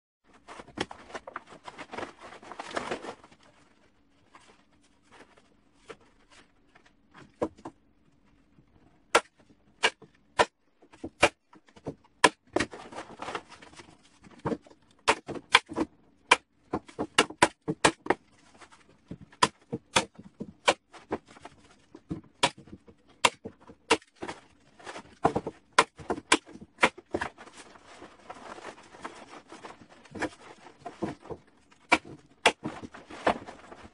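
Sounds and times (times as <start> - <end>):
plastic tarp rustling: 0.3 - 6.4, 27.1 - 31.3, 32.7 - 33.9.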